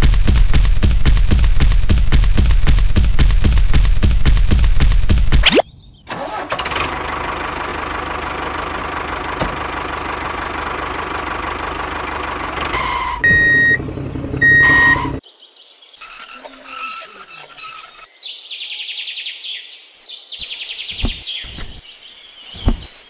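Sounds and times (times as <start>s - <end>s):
rapid loud knocks: 0.0s - 5.4s
tractor engine running: 0.0s - 15.2s.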